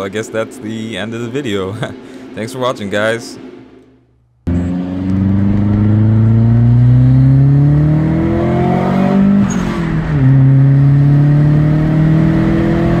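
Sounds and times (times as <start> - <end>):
car engine accelerating hard: 4.5 - 13.0.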